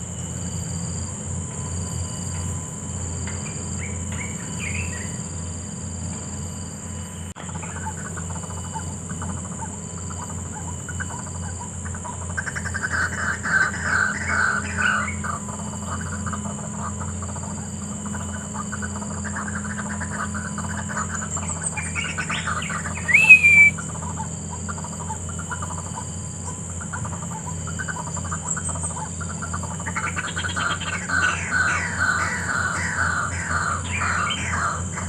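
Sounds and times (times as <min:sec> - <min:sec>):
steady low hum: 0:00.0 - 0:35.0
waterhens croaking calls: 0:11.9 - 0:15.6, 0:21.8 - 0:23.7, 0:29.3 - 0:35.0
rising and falling bird call: 0:21.7 - 0:23.8.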